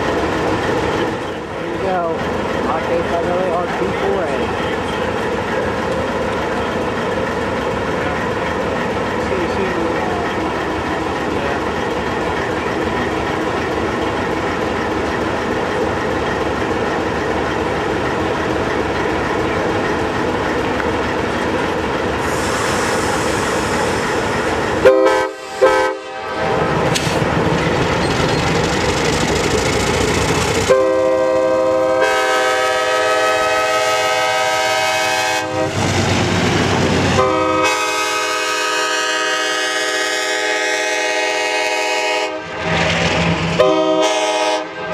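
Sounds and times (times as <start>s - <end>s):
locomotive rumble and hiss: 0.5s - 44.9s
train air horn: 24.8s - 26.5s, 30.7s - 35.8s, 37.2s - 42.6s, 43.6s - 44.8s.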